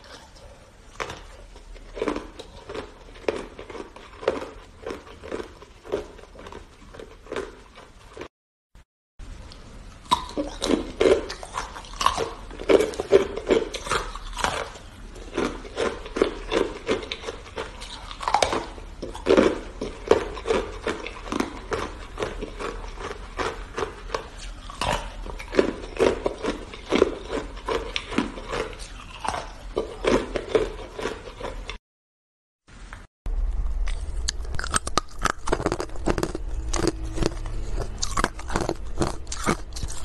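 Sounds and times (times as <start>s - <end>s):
ice being chewed: 0.0s - 8.3s, 10.0s - 31.8s, 33.6s - 40.0s.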